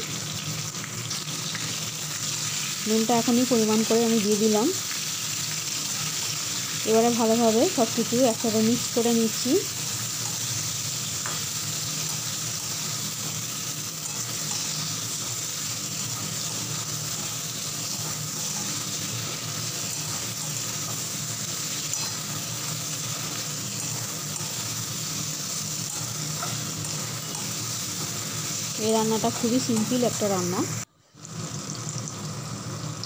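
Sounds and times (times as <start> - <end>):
vegetables sizzling in oil: 0.0 - 33.0
spatula stirring: 9.3 - 30.2.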